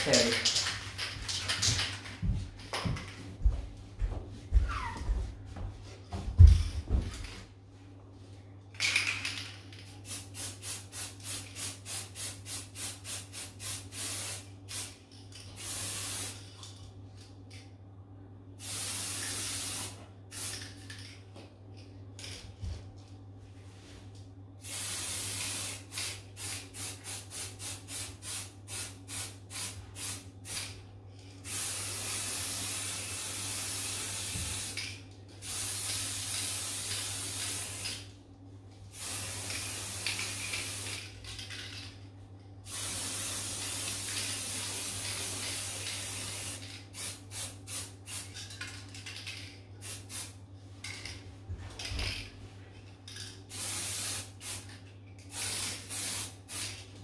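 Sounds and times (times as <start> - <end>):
spray paint can spraying: 10.0 - 15.0, 18.6 - 20.8, 24.6 - 30.7, 31.4 - 38.0, 38.9 - 41.5, 42.7 - 48.3, 49.8 - 50.4, 53.5 - 54.7, 55.3 - 56.8.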